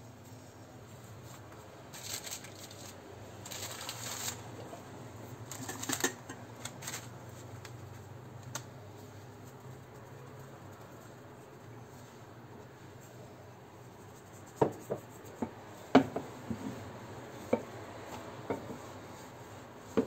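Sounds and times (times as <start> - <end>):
low steady hum: 0.0 - 20.0
dough pressed on silicone mat: 13.7 - 20.0.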